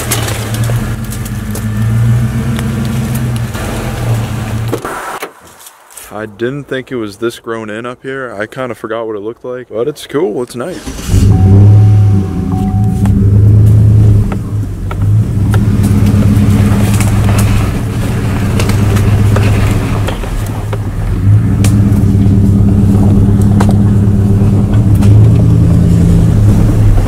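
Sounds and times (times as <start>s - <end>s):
pickup truck engine running: 11.3s - 27.0s.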